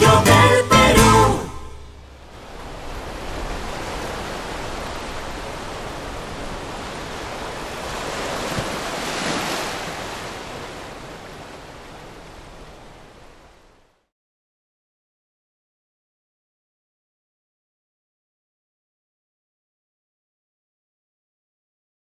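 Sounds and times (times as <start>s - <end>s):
ocean surf washing onto beach: 0.0s - 14.0s.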